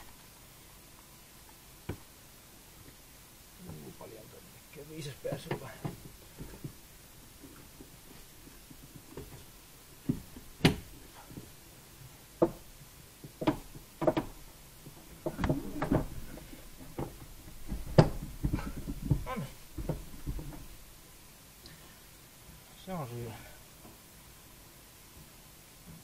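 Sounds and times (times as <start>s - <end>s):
knocks and clunks of hand work: 1.8s - 2.1s, 5.3s - 6.8s, 7.4s - 11.5s, 12.4s - 20.8s.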